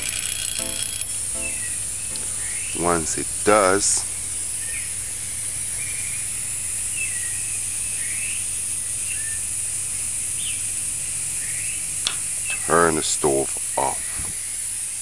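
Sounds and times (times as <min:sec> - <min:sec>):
bird chirps: 0:00.6 - 0:03.0.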